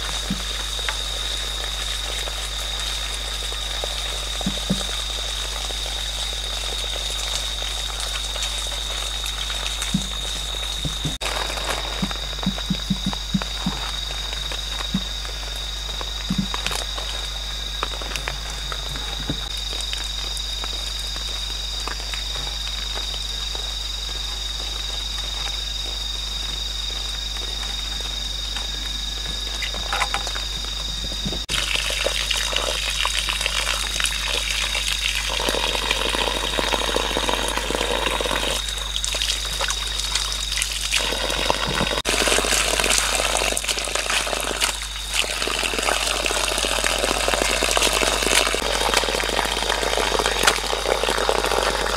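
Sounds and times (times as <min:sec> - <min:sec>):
water splashing on muddy ground: 0:00.0 - 0:25.7, 0:31.4 - 0:51.9
hands knocking on bamboo: 0:12.0 - 0:13.8.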